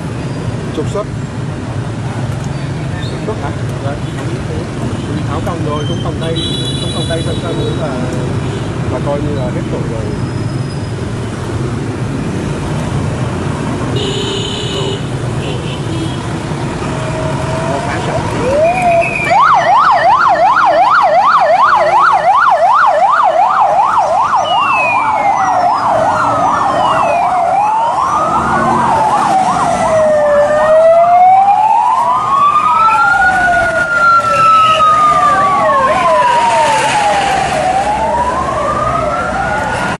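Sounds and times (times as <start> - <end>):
police sirens wailing: 16.3 - 39.9
police sirens yelping: 16.8 - 39.9.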